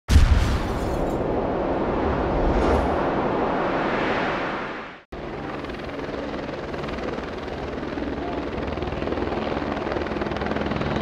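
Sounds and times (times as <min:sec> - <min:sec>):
dense rushing noise: 0:01.1 - 0:05.1
helicopter rotor and engine: 0:05.1 - 0:11.0.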